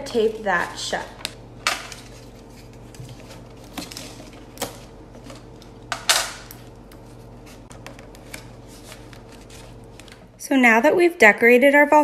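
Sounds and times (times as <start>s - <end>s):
faint steady hum: 0.0s - 12.0s
paper crackling: 0.2s - 10.3s.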